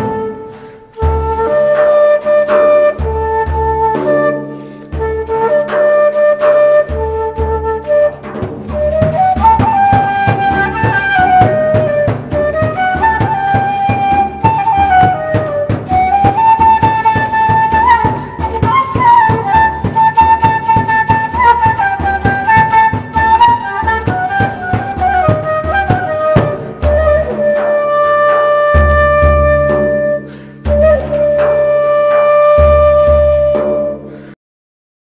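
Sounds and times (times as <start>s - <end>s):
quick percussion beat: 0.0s - 34.2s
high instrumental melody: 8.6s - 27.8s.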